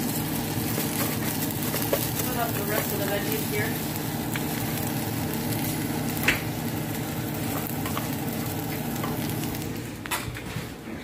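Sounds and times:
rice and onion sizzling in oil: 0.0 - 10.1.

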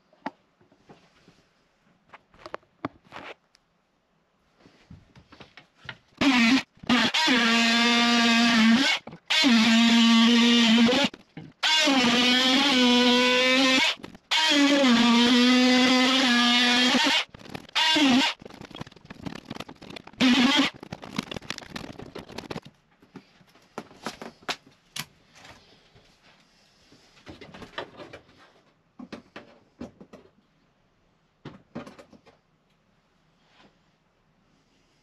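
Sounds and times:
oscillating multi-tool buzzing: 6.2 - 18.5, 20.1 - 20.8
clicks knocks and scraping: 17.2 - 24.7.

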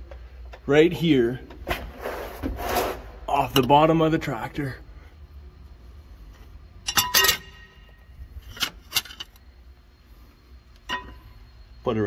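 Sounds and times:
metal clanks: 6.8 - 9.4, 10.8 - 11.4.

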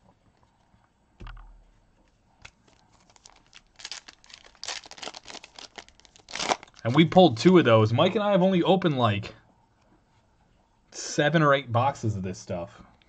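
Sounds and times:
foil wrapper tearing and crinkling: 2.4 - 7.0.

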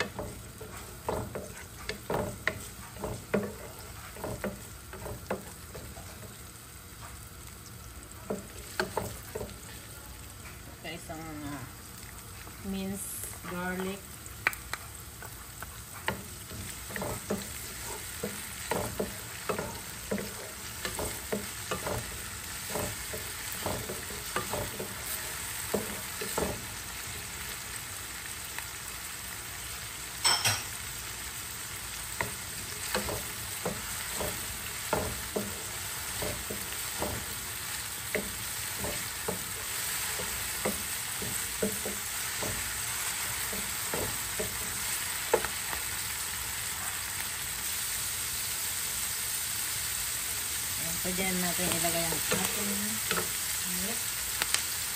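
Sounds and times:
wooden spatula stirring: 0.0 - 7.2, 15.2 - 27.1, 32.2 - 45.6
onions sizzling in oil: 0.0 - 54.9.

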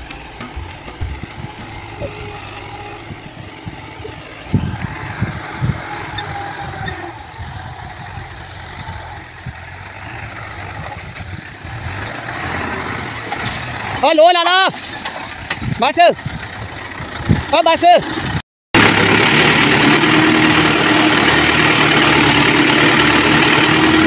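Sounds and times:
thumps on microphone: 0.0 - 1.8
tractor engine under load: 0.0 - 24.0.

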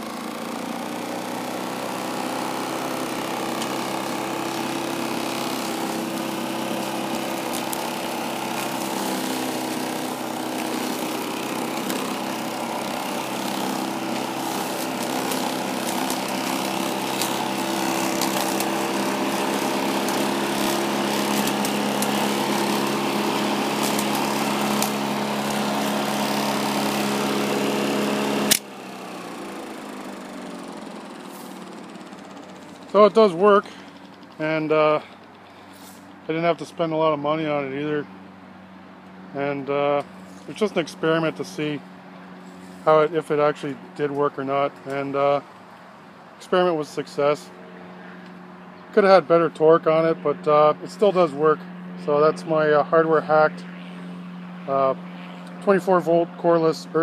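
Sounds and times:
electric lawnmower humming whine: 0.0 - 57.0
motor switching off click: 28.4 - 28.8.

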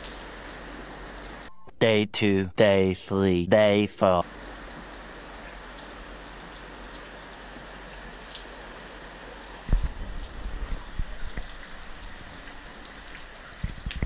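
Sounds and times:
rain falling: 0.0 - 1.5, 4.2 - 14.0
water dripping: 0.0 - 1.5, 4.2 - 14.0.

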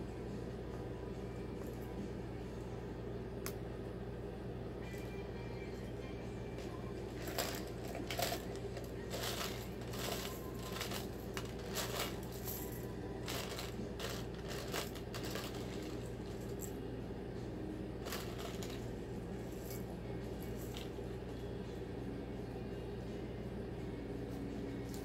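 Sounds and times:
plastic chain links rattling: 7.2 - 16.7, 18.0 - 18.8.

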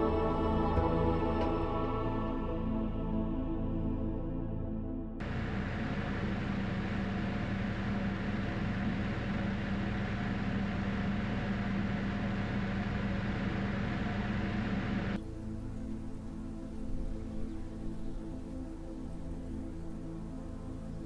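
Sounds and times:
mechanical drone with hiss: 5.2 - 15.6.

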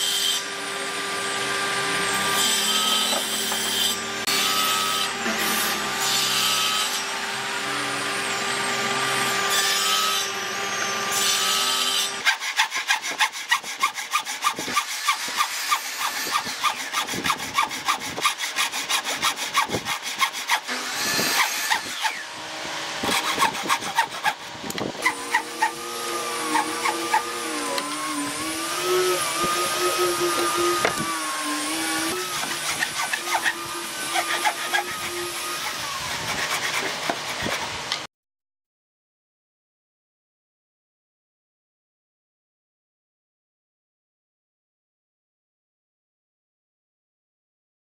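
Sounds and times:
hand saw cutting wood: 0.0 - 38.1
table saw whining: 0.0 - 38.1
wavering hum: 24.7 - 32.2.

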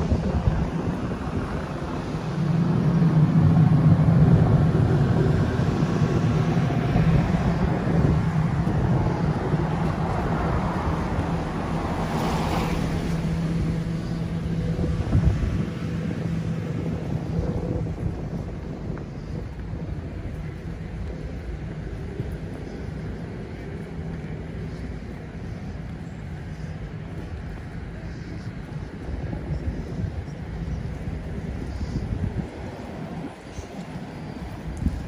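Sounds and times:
traffic hum: 0.0 - 35.0
wind buffeting microphone: 0.0 - 35.0
vehicle swishing past on wet road: 8.7 - 15.8.

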